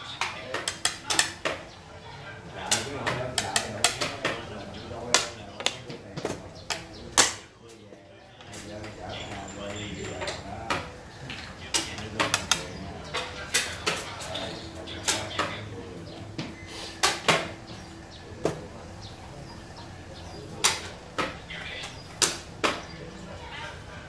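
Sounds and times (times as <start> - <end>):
game pieces clicking on wooden board: 0.2 - 1.6, 2.7 - 4.5, 5.1 - 7.4, 8.4 - 15.5.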